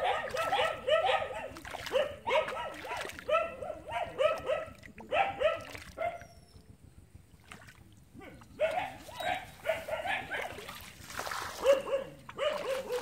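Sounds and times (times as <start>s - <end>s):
dog barking: 0.0s - 6.2s, 8.2s - 10.8s, 11.5s - 13.0s.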